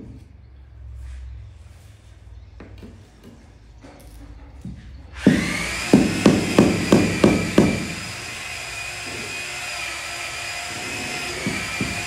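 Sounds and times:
power tool high whine: 5.2 - 12.0.

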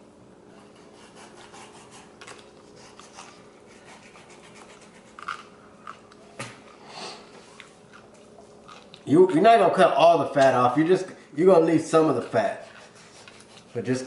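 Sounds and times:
knife scraping meat in foil pan: 12.0 - 14.0.

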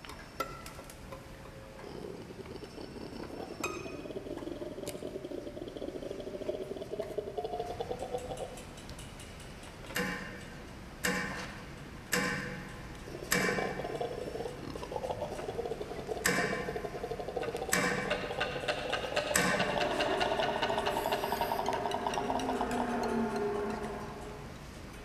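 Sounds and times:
steady droning tone: 15.8 - 25.0
sharp percussive strikes: 17.7 - 24.4.

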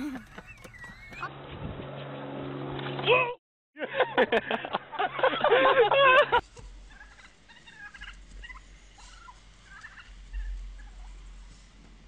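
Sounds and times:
turkey calling: 0.0 - 1.3, 6.6 - 11.2.

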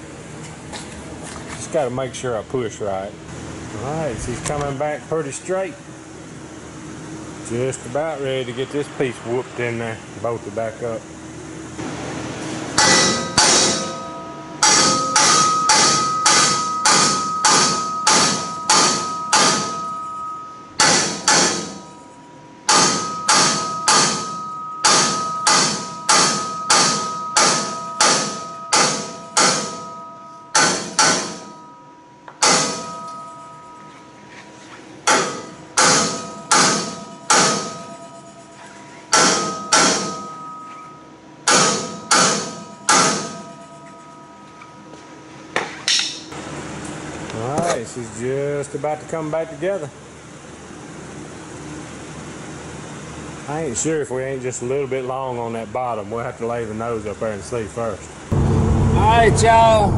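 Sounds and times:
hammer striking steel tube: 12.8 - 22.1, 22.7 - 33.5, 35.0 - 38.2, 39.1 - 43.8.

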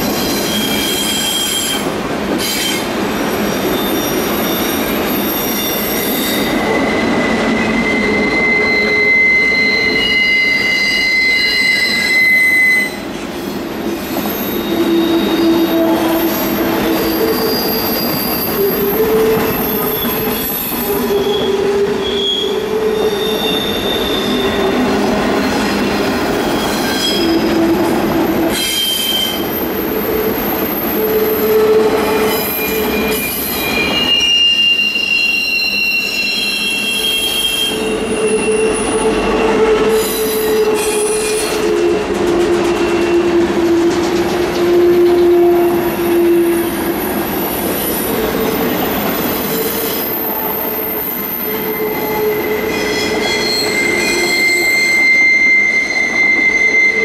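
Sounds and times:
train wheels squealing on rails: 0.0 - 57.0
train rolling rumble: 12.9 - 34.3, 37.2 - 57.0.

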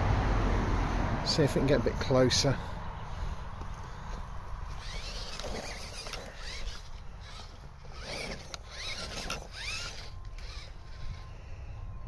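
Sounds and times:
rc car motor whining: 2.4 - 12.0.

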